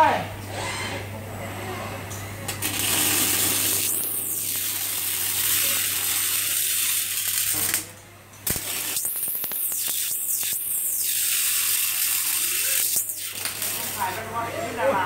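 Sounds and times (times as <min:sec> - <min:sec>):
welding arc striking click: 0:02.5 - 0:14.2
welding arc crackling: 0:02.5 - 0:14.4.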